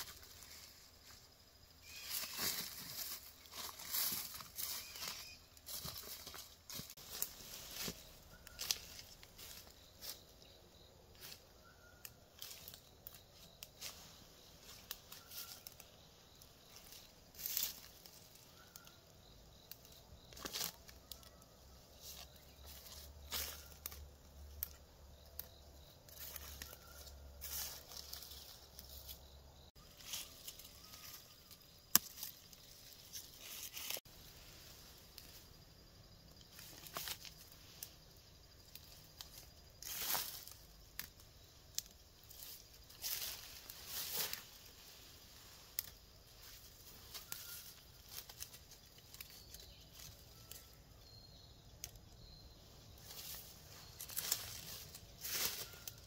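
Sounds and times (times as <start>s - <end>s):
leaves rustling: 0.0s - 51.2s, 52.6s - 56.0s
plant stems snapping: 31.9s - 32.4s.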